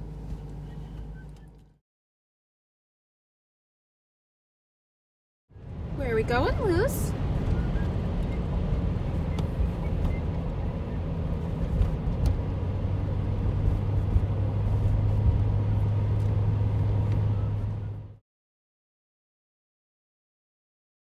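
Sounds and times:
car cabin road noise: 0:00.0 - 0:01.8, 0:05.6 - 0:18.2.

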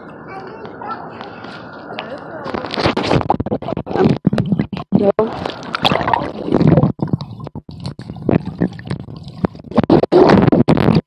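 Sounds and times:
muffled water sloshing and gurgling: 0:02.5 - 0:11.0.

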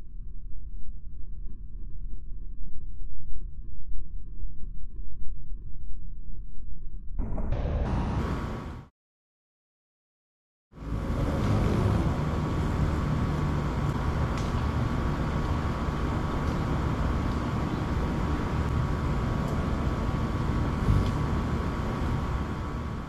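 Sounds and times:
outdoor background rumble: 0:00.0 - 0:08.9, 0:10.7 - 0:23.0.

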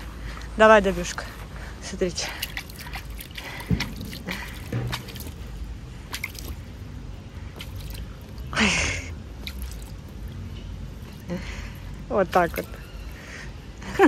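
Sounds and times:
water dripping: 0:00.3 - 0:13.3
water splash: 0:02.3 - 0:08.7, 0:09.3 - 0:11.3, 0:12.3 - 0:12.9
dog biting at water: 0:02.4 - 0:05.5, 0:06.1 - 0:06.7.

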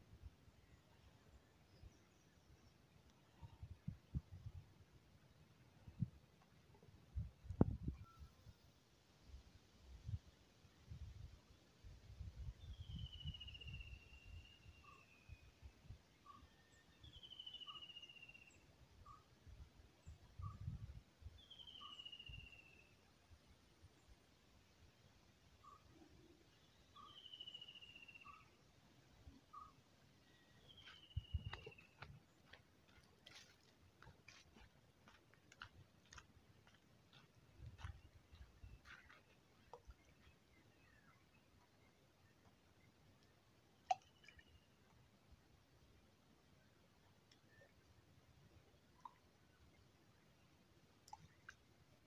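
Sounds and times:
wind rumble on microphone: 0:07.1 - 0:08.0.

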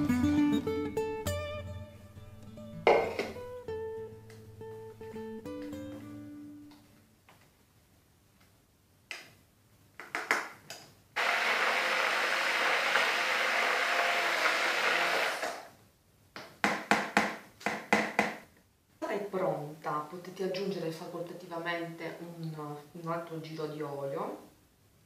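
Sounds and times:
plucked guitar notes: 0:00.0 - 0:06.8
immersion blender running: 0:11.2 - 0:15.7.

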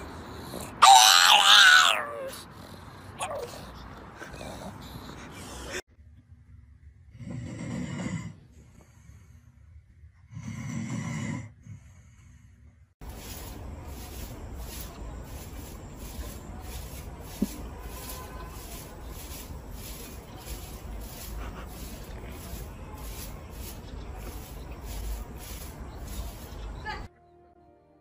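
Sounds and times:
dog snoring: 0:07.1 - 0:08.5, 0:10.3 - 0:12.0
swishing strokes on dry ground: 0:13.0 - 0:27.1.

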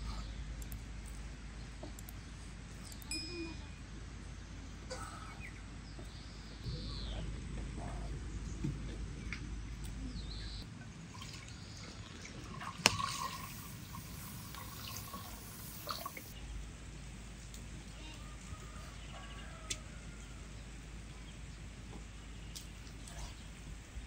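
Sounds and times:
liquid pouring into metal pot: 0:11.1 - 0:16.3.

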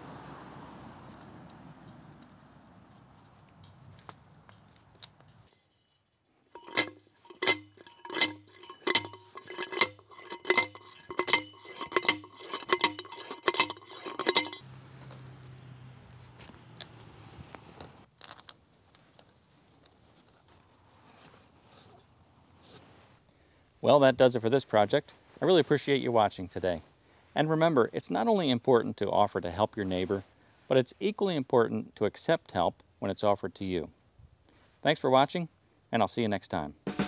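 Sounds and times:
post driver clanking on metal: 0:06.5 - 0:14.6.

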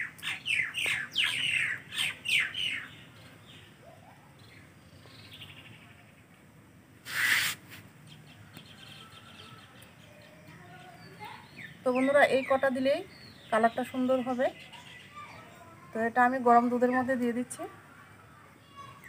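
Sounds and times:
bird chirping: 0:00.0 - 0:06.4, 0:07.1 - 0:15.9
short rush of noise: 0:07.0 - 0:07.9.

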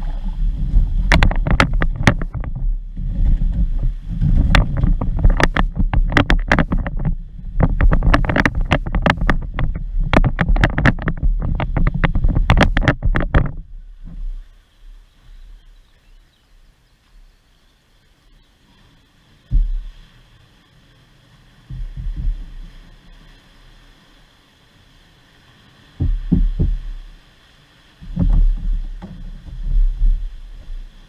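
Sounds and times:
rushing rough water: 0:00.0 - 0:31.0
sharp knocks and clatters: 0:00.6 - 0:14.2, 0:19.5 - 0:20.0, 0:21.7 - 0:22.7, 0:26.0 - 0:27.0, 0:28.0 - 0:30.9.

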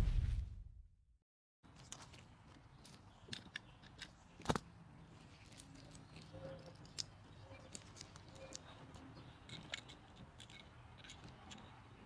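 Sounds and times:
metal parts clicking and tapping: 0:05.4 - 0:12.0.

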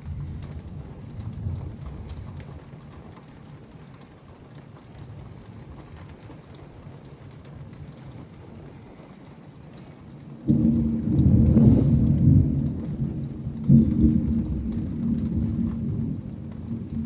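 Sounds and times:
heavy rain falling: 0:00.0 - 0:17.0
low rumble of thunder: 0:00.0 - 0:17.0.

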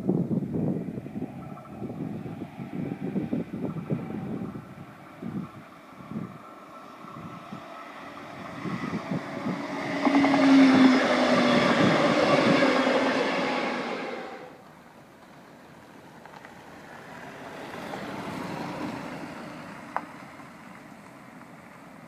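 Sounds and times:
wind buffeting microphone: 0:00.0 - 0:14.6
train wheels rushing on rail: 0:01.1 - 0:14.6.

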